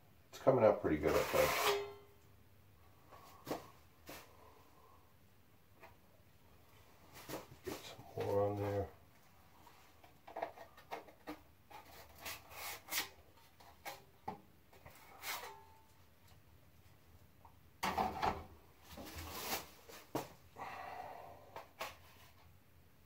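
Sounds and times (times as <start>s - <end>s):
knife scraping a container: 1.0s - 2.0s.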